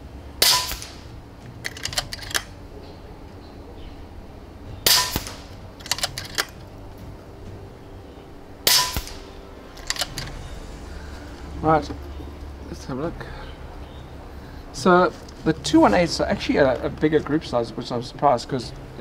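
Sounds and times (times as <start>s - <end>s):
air rifle shot cracking: 0.4s - 1.1s, 4.8s - 6.1s, 8.6s - 10.3s
rifle cocking clicks: 1.6s - 2.5s, 4.9s - 6.6s, 9.8s - 10.4s.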